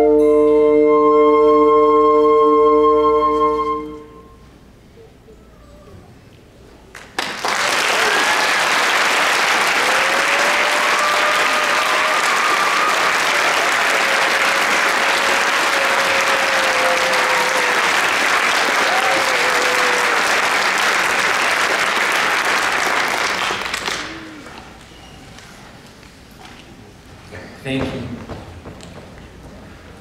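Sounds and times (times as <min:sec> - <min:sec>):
audience applauding: 0:06.9 - 0:24.8
long drawn-out whoops: 0:07.8 - 0:08.7, 0:09.7 - 0:20.6, 0:23.8 - 0:24.8.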